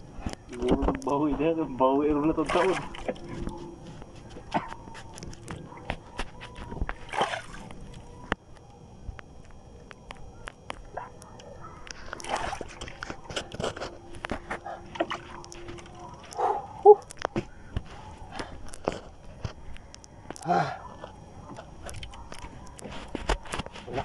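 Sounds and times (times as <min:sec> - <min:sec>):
water sloshing against boat: 0:02.2 - 0:08.3, 0:12.0 - 0:16.8.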